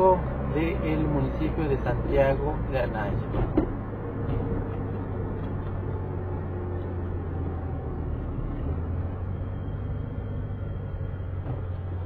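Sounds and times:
car engine hum: 0:00.0 - 0:12.0
tyre road rumble: 0:00.0 - 0:12.0.

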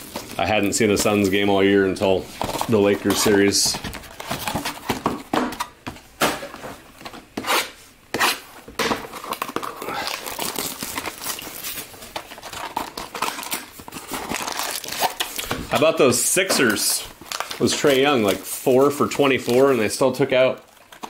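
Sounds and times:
plastic wrap crinkling: 0:00.0 - 0:05.8, 0:09.1 - 0:21.0.

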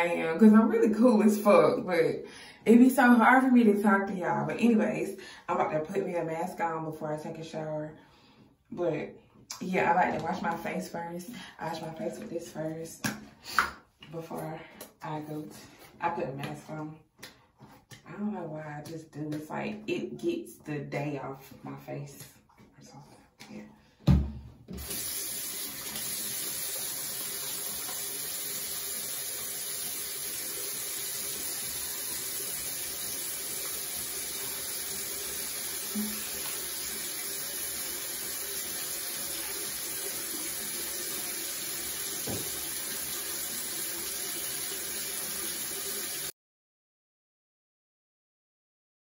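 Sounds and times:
sink tap running: 0:24.7 - 0:46.3.

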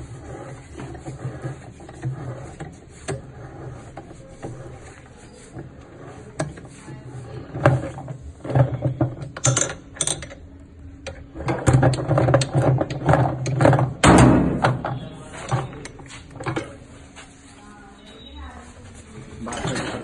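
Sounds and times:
metal clanks and rattles: 0:07.5 - 0:10.4, 0:11.1 - 0:16.9, 0:19.4 - 0:20.0.

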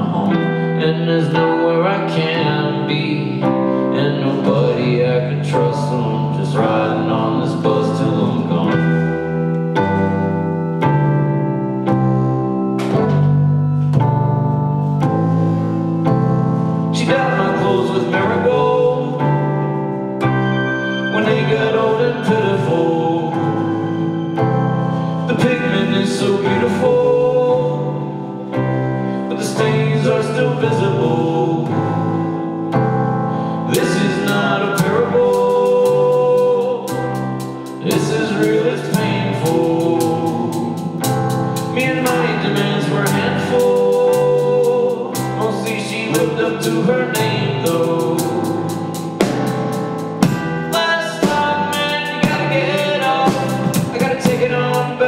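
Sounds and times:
male vocals: 0:00.0 - 0:09.4, 0:16.9 - 0:19.7, 0:21.1 - 0:24.0, 0:25.2 - 0:32.1, 0:33.4 - 0:49.0, 0:50.7 - 0:55.0
electric keyboard chords: 0:00.0 - 0:55.0
drum kit playing: 0:11.9 - 0:18.7, 0:36.9 - 0:55.0.

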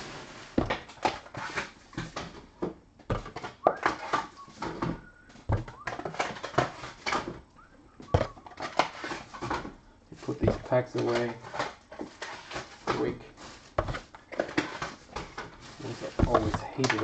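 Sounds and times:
foil packs crinkling: 0:08.5 - 0:17.0.

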